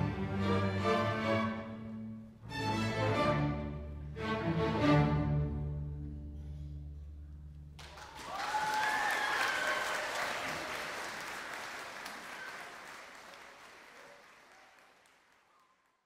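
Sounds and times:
audience cheering: 7.8s - 15.2s
audience applause: 7.8s - 16.0s.

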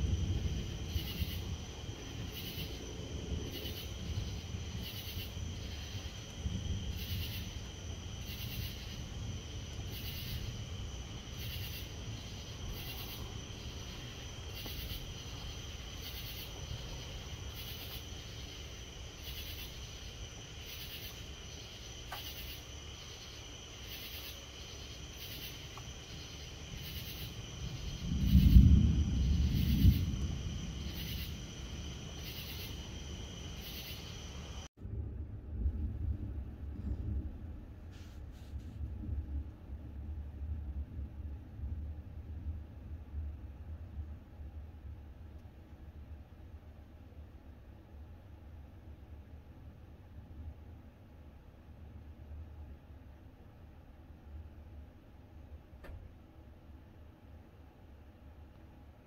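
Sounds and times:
night insects chirping: 0.0s - 34.7s
thunder rumbling: 0.0s - 45.0s
low background noise: 0.0s - 59.0s.

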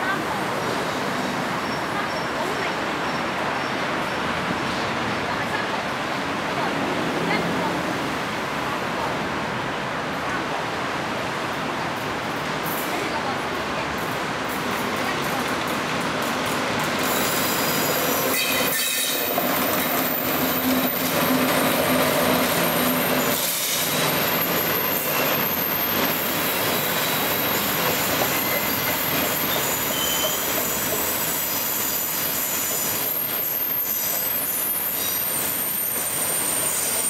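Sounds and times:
train wheels rumbling on rails: 11.3s - 37.0s
high thin squeal: 17.0s - 21.1s, 22.7s - 24.1s, 28.4s - 37.0s.

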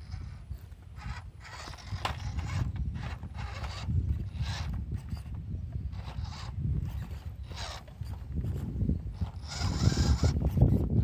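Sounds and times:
small electric motor whirring: 0.0s - 11.0s.

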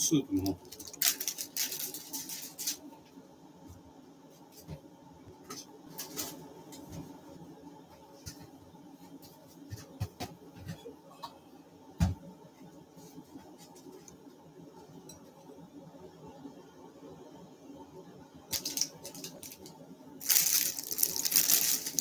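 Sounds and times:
low steady hum: 0.0s - 22.0s
crackle: 0.4s - 2.9s, 18.5s - 22.0s.

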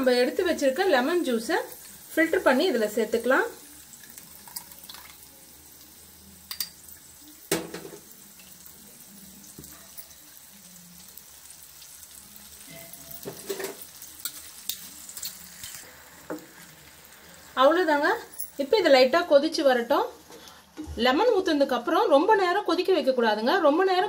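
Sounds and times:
spices sizzling in oil: 0.0s - 24.0s
utensils knocking against a pan: 12.7s - 13.8s.

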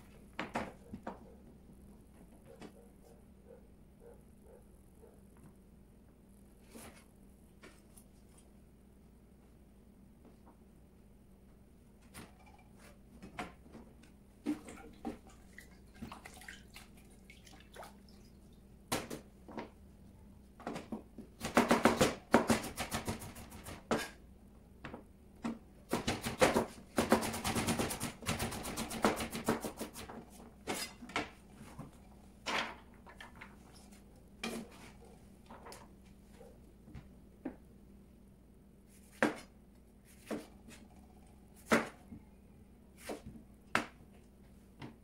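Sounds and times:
knife chopping on plastic board: 20.7s - 24.2s, 25.9s - 30.2s, 39.1s - 39.5s, 40.2s - 40.6s.

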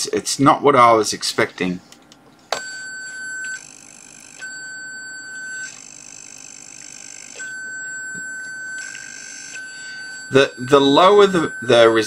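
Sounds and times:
electronic alarm buzzer: 2.6s - 12.0s.

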